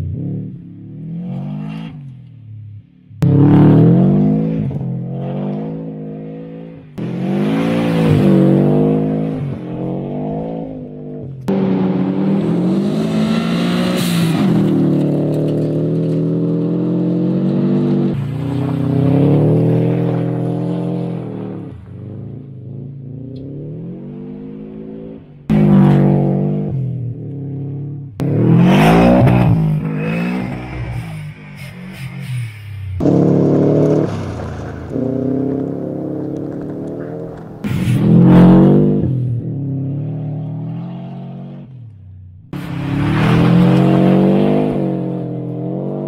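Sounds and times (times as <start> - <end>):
turbocharged engine revving: 16.6 - 32.3, 32.9 - 41.8.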